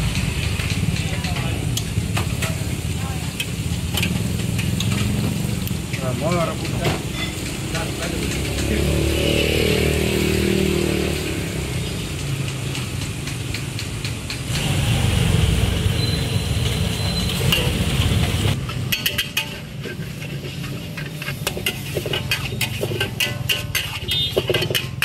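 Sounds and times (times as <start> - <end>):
noodles frying in a wok: 0.0 - 25.0
metal spatula scraping a wok: 1.6 - 9.5, 16.8 - 25.0.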